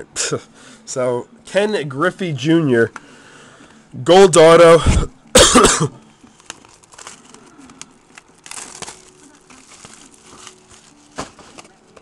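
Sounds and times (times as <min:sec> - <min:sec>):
shrink wrap crinkling and tearing: 0:06.2 - 0:12.0.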